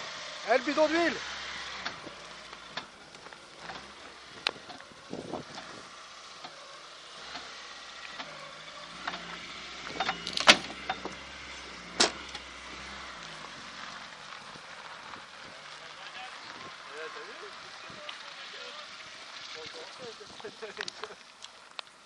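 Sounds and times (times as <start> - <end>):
sharp knocks and clanks: 9.0 - 11.2, 11.9 - 12.4.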